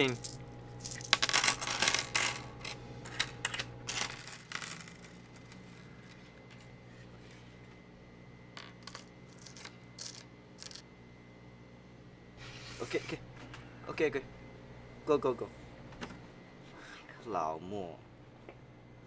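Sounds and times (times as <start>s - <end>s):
coins clinking on a counter: 0.0s - 6.2s, 8.6s - 10.8s.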